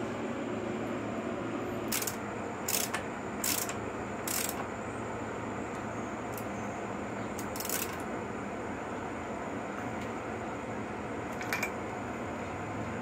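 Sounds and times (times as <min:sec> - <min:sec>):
socket ratchet clicking: 0:01.9 - 0:04.6, 0:07.4 - 0:08.0.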